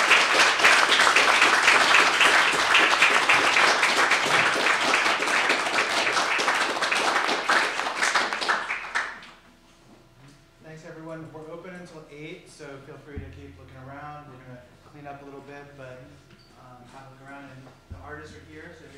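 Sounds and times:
audience applauding: 0.0 - 9.4.

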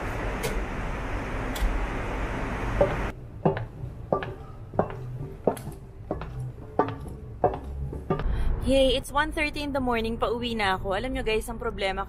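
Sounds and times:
airliner cabin noise: 0.0 - 8.2
high heels on metal steps: 2.8 - 8.4.

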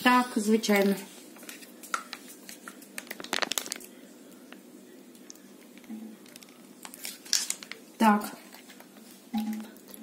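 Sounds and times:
plastic packet crinkling: 1.4 - 4.0, 6.3 - 7.8.

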